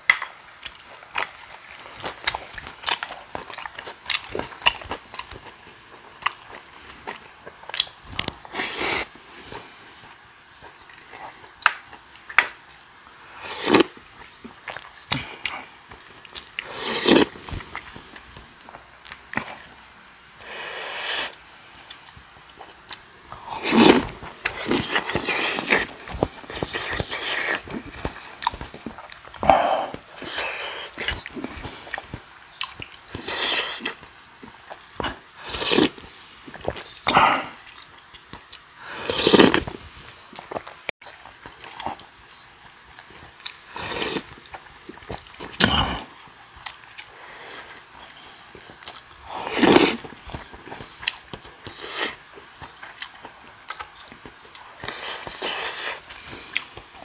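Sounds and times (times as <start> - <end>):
chewing: 0.0 - 20.0, 20.9 - 57.0
slurping broth: 8.4 - 9.6, 13.4 - 14.0, 16.5 - 18.3, 20.4 - 21.4, 23.4 - 32.0, 33.1 - 34.0, 35.1 - 37.6, 38.8 - 39.8, 43.7 - 44.4, 49.2 - 51.0.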